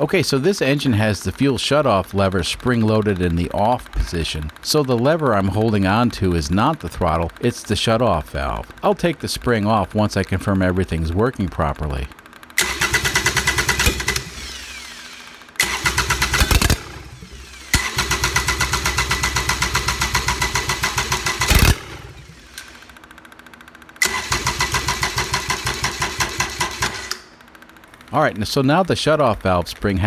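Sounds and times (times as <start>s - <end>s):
starter motor whine: 10.4s - 28.1s
diesel engine cranking on starter: 12.5s - 23.1s, 24.0s - 27.3s.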